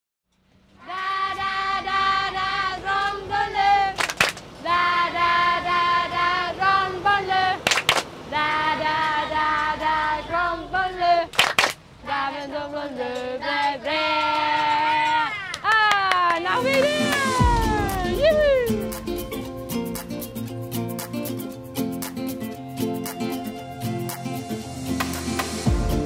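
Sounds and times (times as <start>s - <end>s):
children singing: 0.8s - 4.0s, 4.6s - 7.6s, 8.3s - 11.3s, 12.0s - 15.1s
hands clapping: 4.0s - 4.5s, 7.6s - 8.1s, 11.3s - 11.8s, 13.1s - 17.5s.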